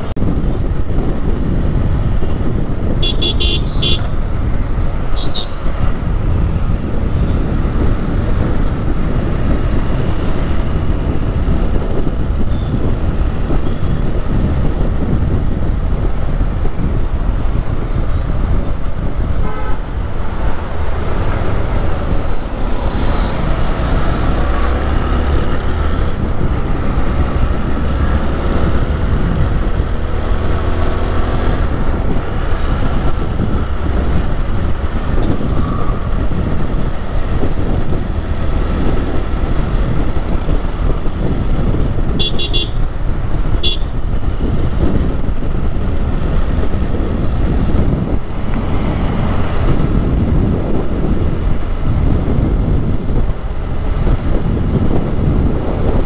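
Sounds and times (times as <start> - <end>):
wind and road noise: 0.0 - 56.0
vehicle horn toots: 3.0 - 4.2, 5.2 - 5.6, 19.4 - 19.8, 42.2 - 42.8, 43.6 - 44.0
motorcycle engine running: 31.5 - 55.7.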